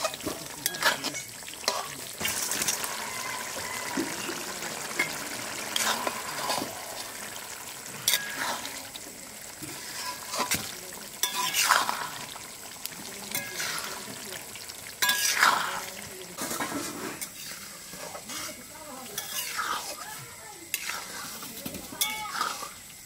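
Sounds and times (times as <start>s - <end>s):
metal spoon scraping a pan: 0.0s - 8.8s, 9.6s - 12.3s, 13.2s - 14.2s, 15.0s - 22.9s
curry sizzling in a pan: 0.0s - 23.0s.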